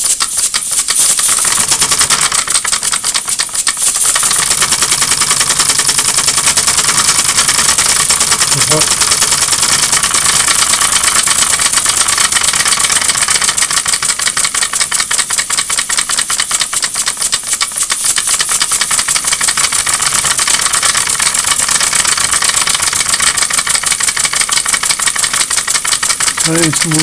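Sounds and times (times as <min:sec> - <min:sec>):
light mechanical clatter: 0:00.0 - 0:27.0
model steam engine puffing: 0:00.0 - 0:27.0.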